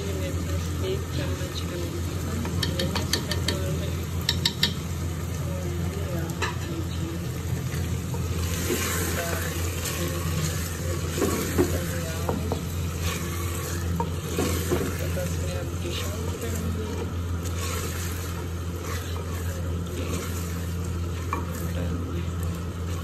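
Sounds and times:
food sizzling in pot: 0.0s - 23.0s
spoon clicking on pot: 2.5s - 3.6s, 4.2s - 4.8s
wooden spoon scraping clay pot: 8.0s - 23.0s.

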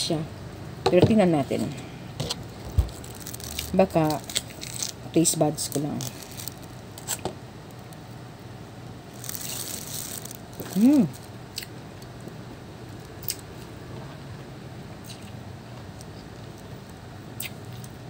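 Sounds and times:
wet tearing and squishing of fruit: 2.3s - 8.0s, 9.1s - 11.7s
mouth clicks while chewing: 15.0s - 15.4s, 17.4s - 18.0s.

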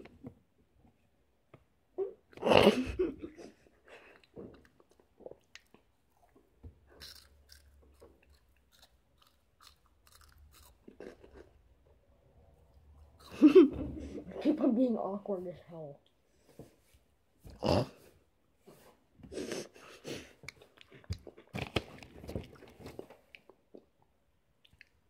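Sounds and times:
person chewing crunchy snacks: 4.0s - 11.6s, 20.5s - 23.9s.

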